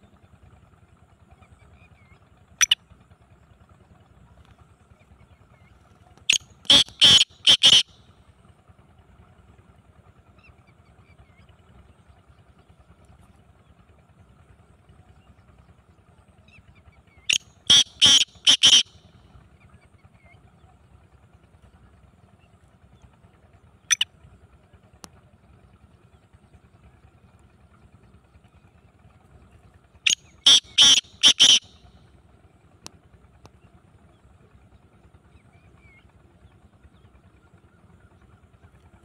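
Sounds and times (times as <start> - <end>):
bird calling harsh notes: 6.3 - 7.9, 17.3 - 18.9, 30.1 - 31.8.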